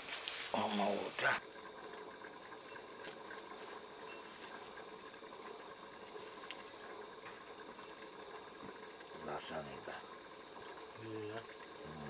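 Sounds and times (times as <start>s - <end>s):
insects trilling: 0.0s - 12.0s
faint clicks: 6.4s - 7.4s.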